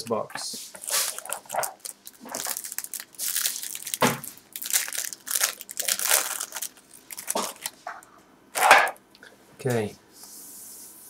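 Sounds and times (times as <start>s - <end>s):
plastic wrapper crinkling: 0.8s - 7.9s.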